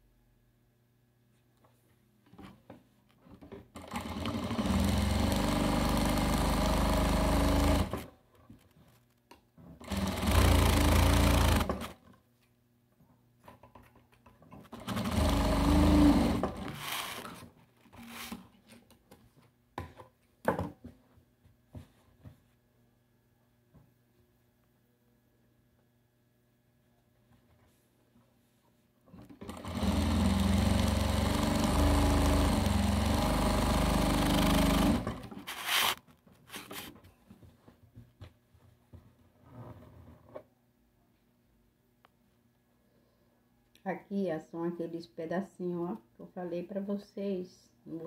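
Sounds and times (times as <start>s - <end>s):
sewing machine stitching: 3.7s - 8.1s, 9.8s - 12.0s, 14.6s - 18.4s, 29.2s - 36.0s.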